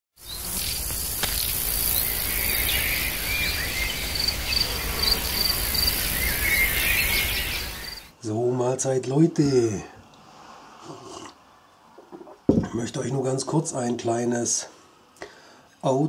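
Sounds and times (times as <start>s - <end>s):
insect trill: 0.2s - 8.1s
constant hiss: 0.2s - 16.0s.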